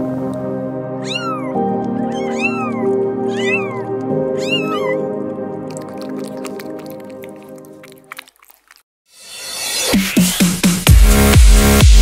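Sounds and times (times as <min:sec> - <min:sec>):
background music with held chords: 0:00.0 - 0:06.6, 0:09.3 - 0:12.0
kitten mewing: 0:01.0 - 0:08.8.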